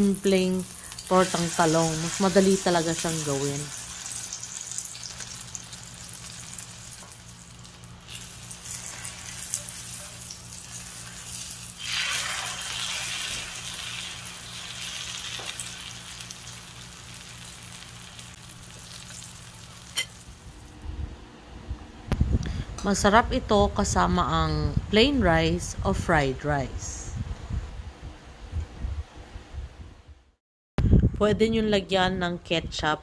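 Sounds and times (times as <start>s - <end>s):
omelette sizzling in oil: 0.0s - 20.4s.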